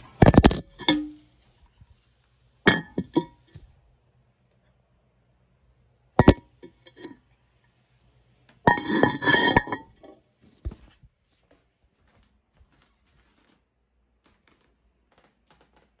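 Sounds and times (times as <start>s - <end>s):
porcelain clinking: 0.2s - 1.3s, 2.7s - 3.6s, 6.2s - 7.2s, 8.7s - 10.1s.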